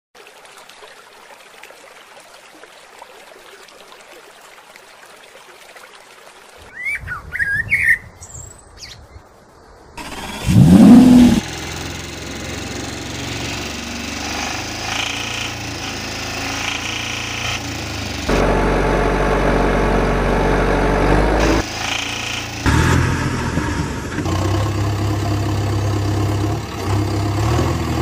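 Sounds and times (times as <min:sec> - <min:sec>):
water splashing and lapping: 0:00.2 - 0:06.9
bird chirps: 0:06.7 - 0:09.3
truck engine revving: 0:10.0 - 0:28.0.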